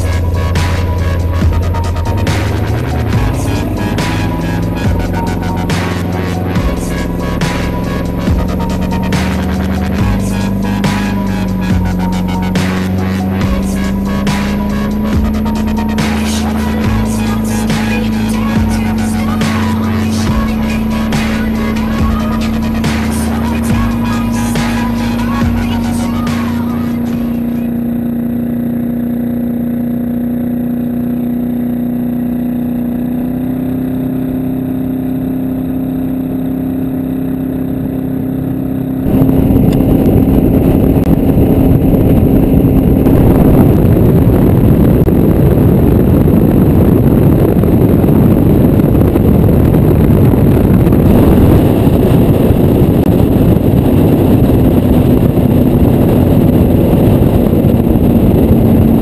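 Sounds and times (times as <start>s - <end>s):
speedboat engine drone: 0.0s - 59.0s
heavy wind: 39.0s - 59.0s.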